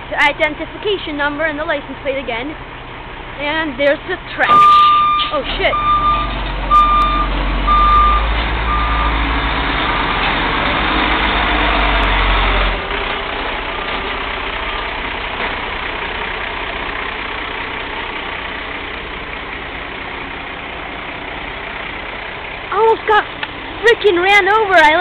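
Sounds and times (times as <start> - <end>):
garbage truck engine running: 0.0 - 25.0
backup alarm beeping: 4.5 - 9.2.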